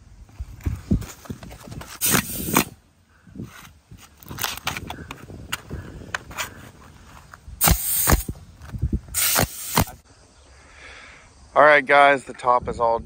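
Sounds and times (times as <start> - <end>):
pneumatic nailer clacks and blasts: 2.0 - 2.7, 7.6 - 8.3, 9.2 - 10.0.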